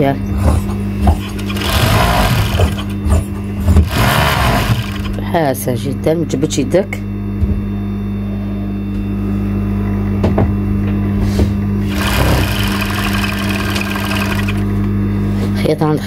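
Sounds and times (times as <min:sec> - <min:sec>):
sewing machine motor humming: 0:01.0 - 0:05.3, 0:11.8 - 0:14.8
sewing machine stitching: 0:01.2 - 0:03.0, 0:03.8 - 0:05.2, 0:11.9 - 0:14.7.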